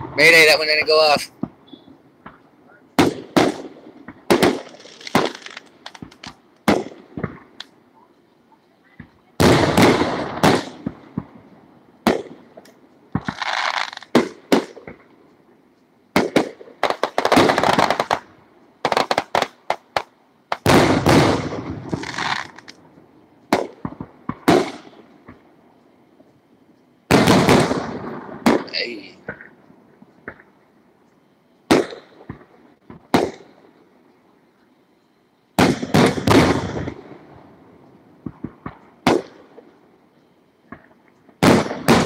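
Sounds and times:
firework shells bursting: 0.0 - 7.8, 9.0 - 15.3, 16.1 - 25.5, 27.1 - 30.6, 31.6 - 33.8, 35.5 - 37.3, 40.6 - 42.0
firework crackling: 0.0 - 30.8, 31.5 - 34.1, 35.5 - 42.0.

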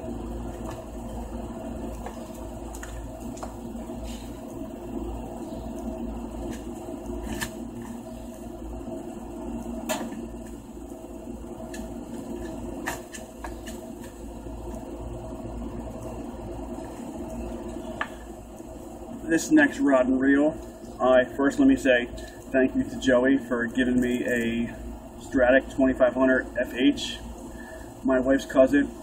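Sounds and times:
garage room tone hum: 0.0 - 29.0.

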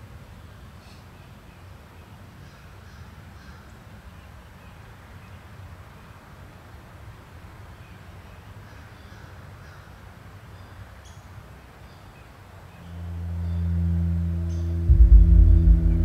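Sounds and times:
deep droning tone: 12.8 - 16.0
low steady rumble: 12.8 - 16.0.

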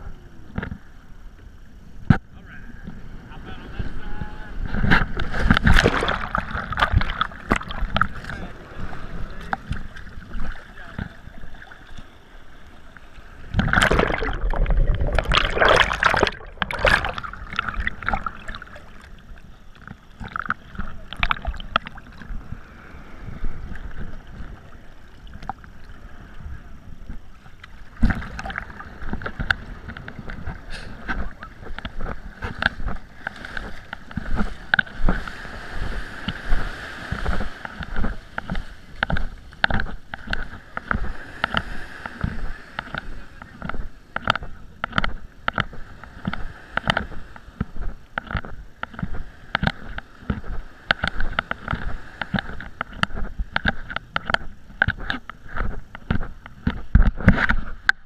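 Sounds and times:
waves sloshing around a kayak: 0.0 - 58.0
waves washing up beach: 1.7 - 58.0
loud splashing: 5.6 - 7.8, 13.5 - 19.1.

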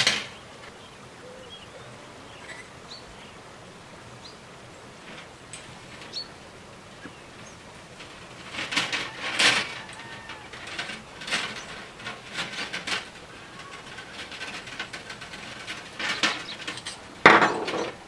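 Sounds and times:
copper tubing scraping and rattling: 5.0 - 18.0.

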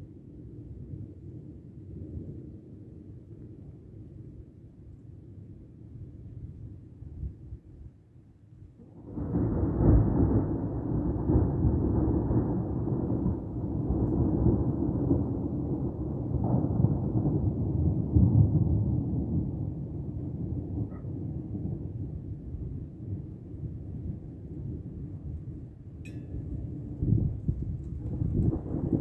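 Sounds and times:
thunder rumbling: 8.8 - 29.0.

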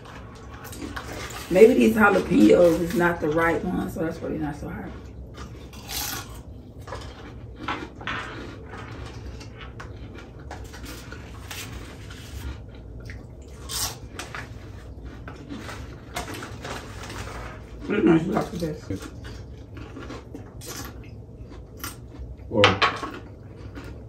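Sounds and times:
wet chewing and mouth smacking: 4.9 - 22.5.

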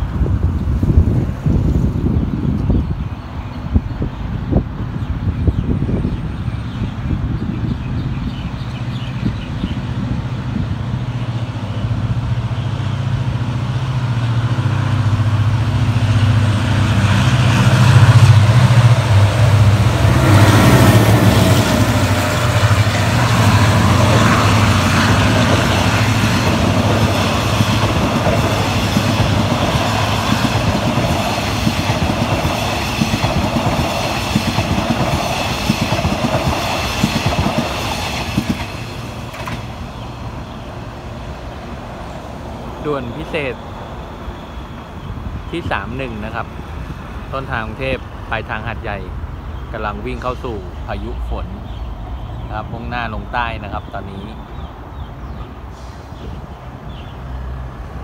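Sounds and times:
locomotive engine hum: 6.2 - 45.5.

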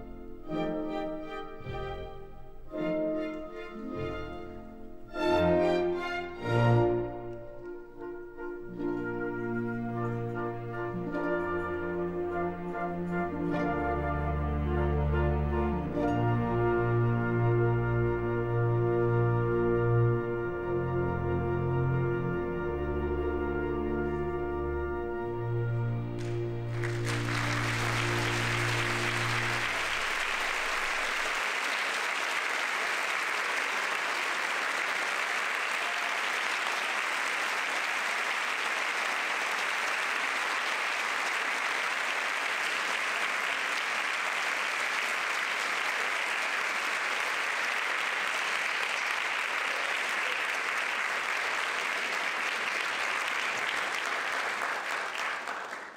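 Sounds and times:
held orchestral chord: 0.0 - 31.4
audience applauding: 26.1 - 55.9.

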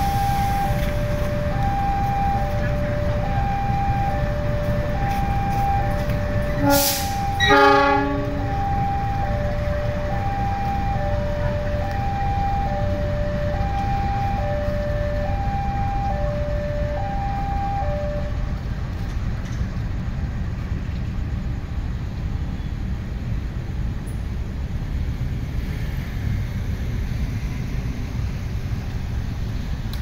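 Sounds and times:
level crossing alarm two-tone: 0.0 - 18.4
locomotive and traffic rumble: 0.0 - 30.0.

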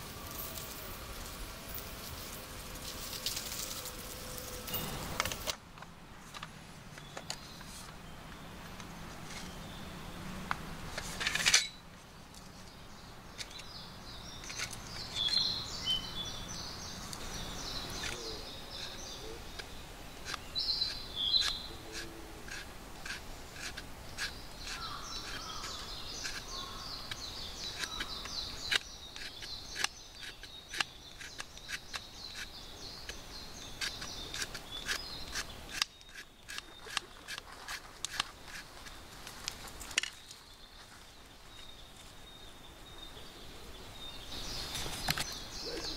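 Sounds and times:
birds chirping: 0.0 - 5.5, 6.2 - 45.9
knife scraping wood: 18.8 - 19.1, 20.2 - 39.0.

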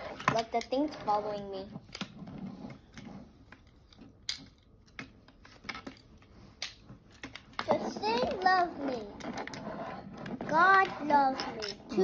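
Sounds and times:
child speaking: 0.1 - 1.8, 7.6 - 9.4, 10.4 - 12.0
plastic magnetic pieces clicking: 3.5 - 8.5, 10.8 - 12.0.

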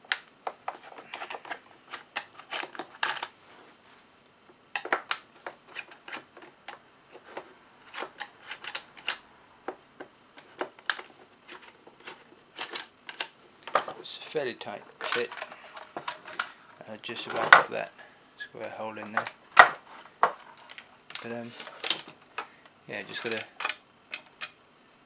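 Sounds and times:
plastic box being handled: 0.4 - 3.3, 4.8 - 17.9, 18.6 - 22.4.

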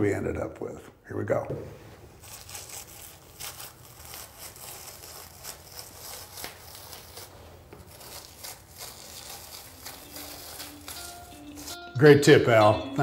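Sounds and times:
tape peeled off carpet: 1.9 - 11.8.

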